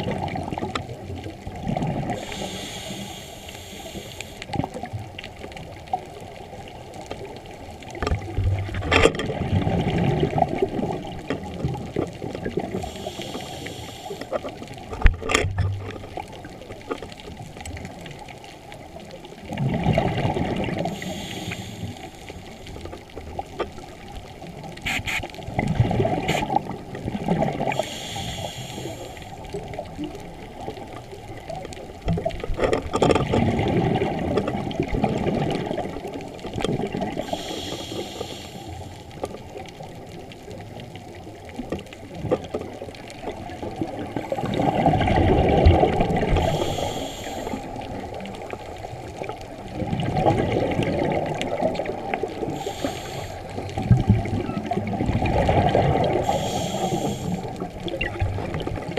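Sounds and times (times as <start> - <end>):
regulator hissing inhalations: 2.2 - 4.5, 12.8 - 14.4, 20.9 - 22.5, 27.7 - 29.4, 37.2 - 38.9, 46.3 - 47.8, 52.4 - 53.6, 56.2 - 57.6
bubbling underwater exhalations: 8.2 - 13.0, 19.4 - 21.2, 24.9 - 28.0, 33.2 - 37.5, 43.4 - 46.8, 49.3 - 52.8, 53.6 - 58.9.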